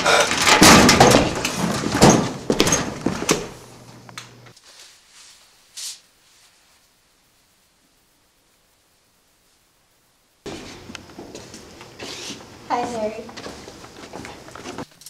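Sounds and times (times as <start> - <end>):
scuffling against metal lockers: 0.1 - 3.6
short hiss: 4.6 - 6.1.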